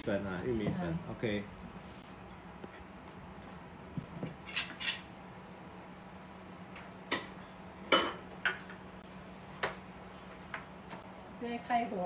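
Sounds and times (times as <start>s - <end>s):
utensils clinking on ceramic dishes: 4.3s - 5.1s.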